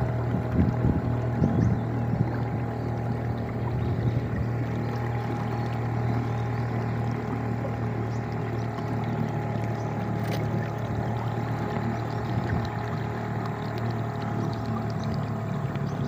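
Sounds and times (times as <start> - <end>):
boat motor droning: 0.0 - 16.0.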